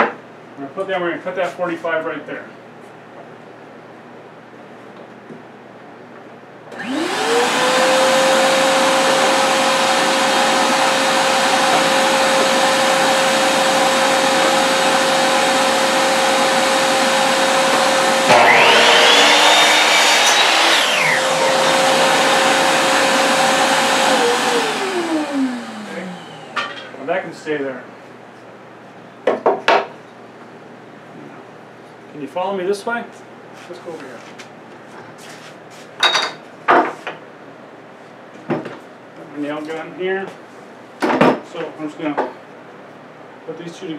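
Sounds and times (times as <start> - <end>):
miter saw cutting wood: 6.7 - 26.6
shop vacuum running: 6.7 - 27.7.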